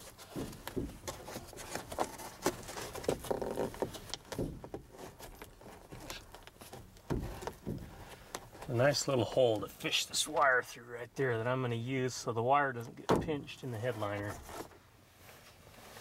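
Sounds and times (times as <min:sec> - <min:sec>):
rustling of plastic trim and wire: 0:00.0 - 0:09.8.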